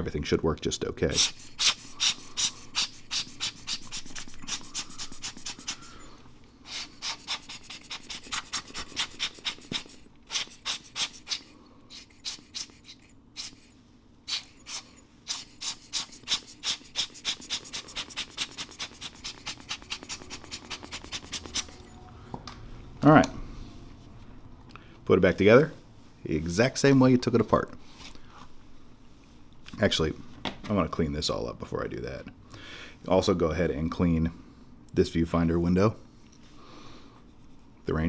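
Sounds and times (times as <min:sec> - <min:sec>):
rubber bulb air blower puffing: 0:01.1 - 0:21.9.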